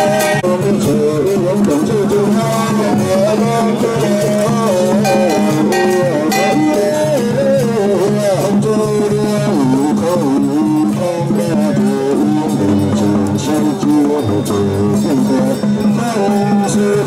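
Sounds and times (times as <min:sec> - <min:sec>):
sliding ornamented melody: 0:05.0 - 0:07.4.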